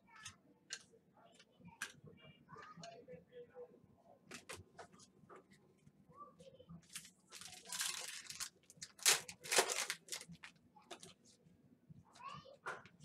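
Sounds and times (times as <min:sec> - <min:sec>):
card pack wrapper ripping: 0:07.0 - 0:10.5.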